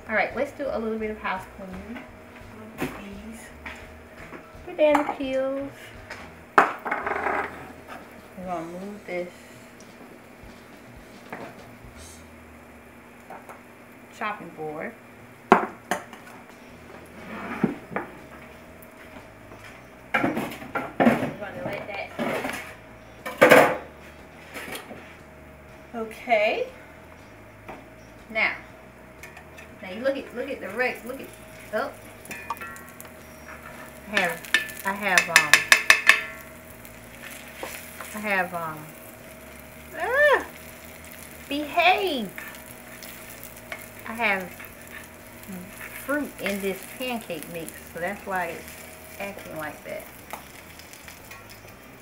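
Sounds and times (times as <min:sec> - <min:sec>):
faint sizzle: 0:00.0 - 0:52.0
dishes knocking on a counter: 0:06.6 - 0:07.6, 0:15.5 - 0:16.2
metal spatula scraping skillet: 0:31.4 - 0:36.5, 0:42.3 - 0:51.7
dishes clattering: 0:33.6 - 0:36.4.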